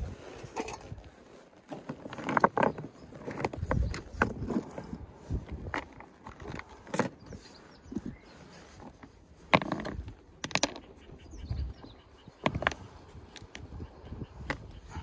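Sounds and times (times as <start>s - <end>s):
rocks clacking and scraping: 0.0s - 15.0s.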